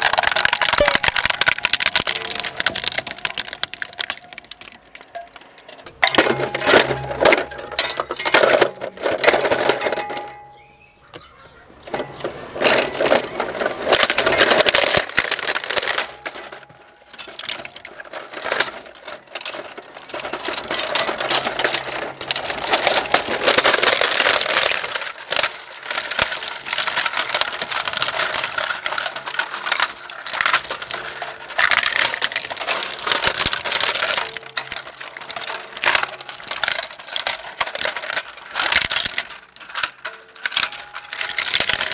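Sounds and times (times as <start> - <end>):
hard plastic crunching in shredder: 0.0 - 10.2, 11.7 - 41.9
shredder machine hum: 11.9 - 39.3.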